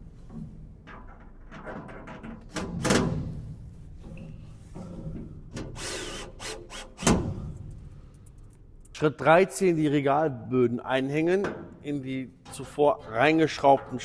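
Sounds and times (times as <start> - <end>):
cordless drill driving screws: 5.8 - 7.2.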